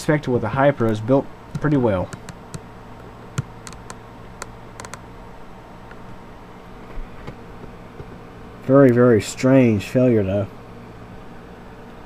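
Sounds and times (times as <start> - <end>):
low steady hum: 0.0 - 12.0
handling clicks and taps: 1.5 - 2.7, 3.4 - 5.0.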